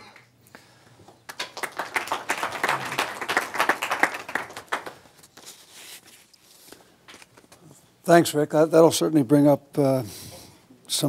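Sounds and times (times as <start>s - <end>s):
audience applauding: 1.3s - 5.2s.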